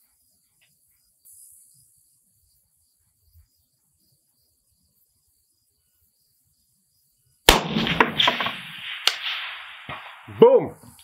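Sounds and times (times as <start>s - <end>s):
gunshot echo: 7.5s - 11.0s
rifle shot crack: 7.5s - 11.0s.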